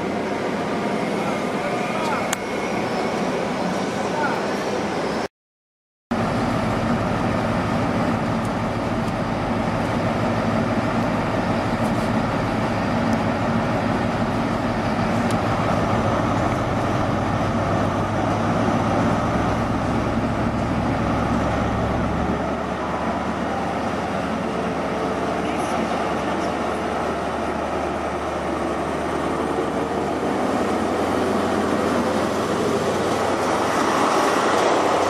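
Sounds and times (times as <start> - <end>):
diesel engine droning: 6.2 - 35.0.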